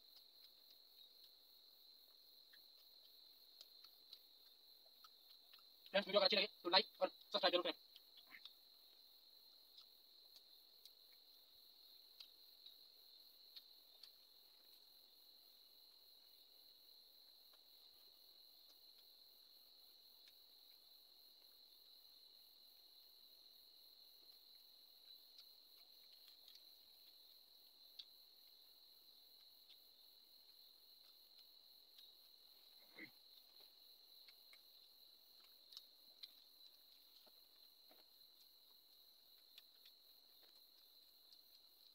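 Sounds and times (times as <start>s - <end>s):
cricket trill: 0.0s - 41.9s
soft clicks from eating: 2.5s - 5.9s, 24.3s - 41.9s.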